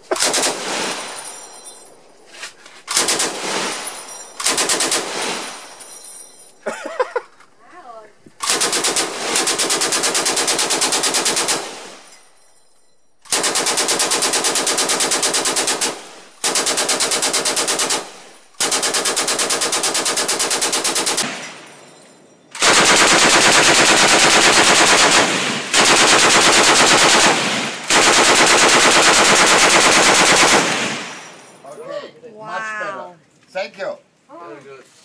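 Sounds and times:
machine gun automatic fire: 0.0s - 1.4s, 2.9s - 6.0s, 8.4s - 12.0s, 13.3s - 21.7s, 22.6s - 31.4s.

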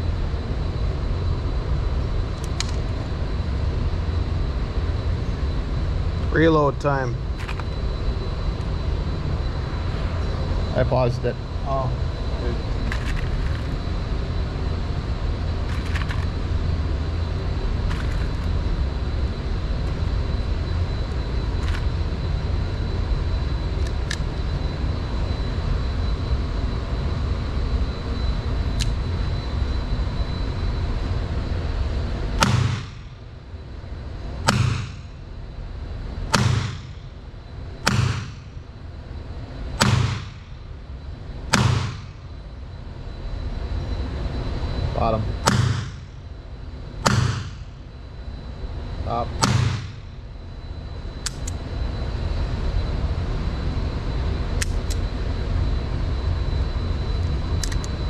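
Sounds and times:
low rumble: 0.0s - 27.1s
revolver gunshots with echo: 32.4s - 33.0s, 34.5s - 35.0s, 36.3s - 37.0s, 37.9s - 38.4s, 39.8s - 40.4s, 41.5s - 42.1s, 45.5s - 46.0s, 47.0s - 47.6s, 49.4s - 50.0s
revolver loading clicks: 51.2s - 51.6s, 57.6s - 58.0s.

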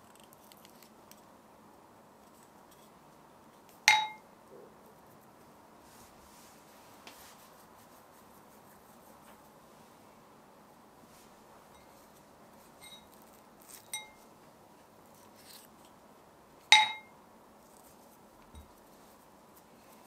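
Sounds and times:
utensil clinking against bowl: 3.9s - 4.2s, 13.9s - 14.2s, 16.7s - 17.1s.

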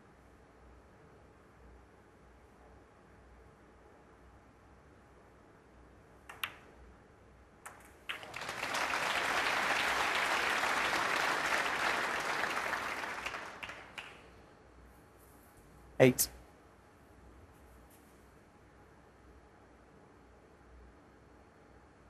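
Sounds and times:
snooker balls clicking: 6.3s - 6.7s, 7.6s - 8.3s
audience applause: 8.1s - 14.2s.

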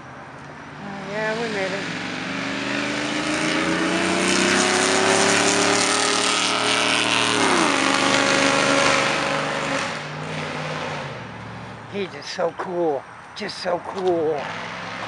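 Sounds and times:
loud exhaust accelerating past: 0.6s - 12.0s.

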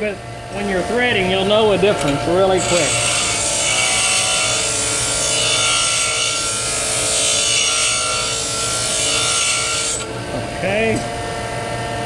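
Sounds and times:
grinder motor hum: 0.0s - 12.0s
tool bit grinding hiss: 2.4s - 10.1s.

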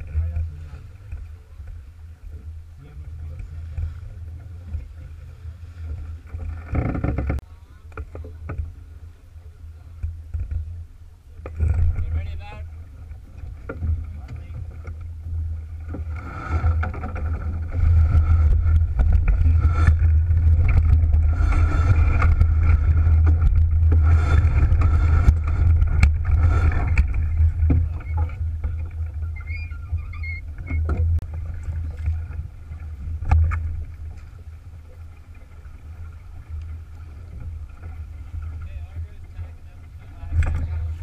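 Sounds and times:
water rushing along hull: 0.0s - 41.0s
wind buffeting microphone: 11.5s - 41.0s.

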